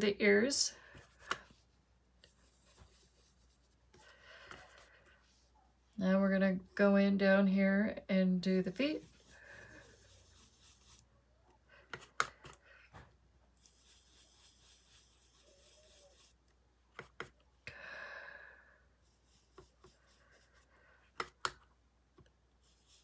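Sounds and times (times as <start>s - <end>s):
soft scrubbing of ink tool: 2.2s - 5.5s, 8.5s - 11.1s, 13.6s - 17.2s, 19.0s - 20.7s, 22.6s - 23.0s.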